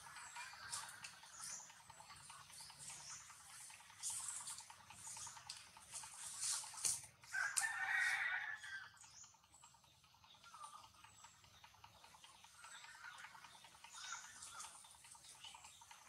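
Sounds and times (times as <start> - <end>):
faint high-pitched rasping and ticking: 0.0 - 16.0
rooster crowing: 7.3 - 9.0.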